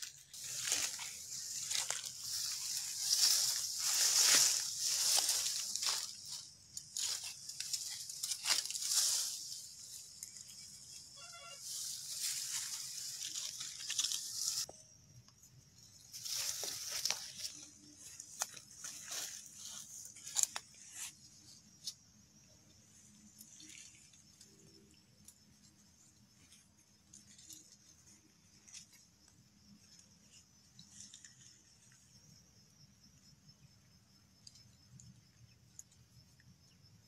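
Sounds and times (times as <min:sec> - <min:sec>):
rustling and crackling: 0:00.0 - 0:11.0.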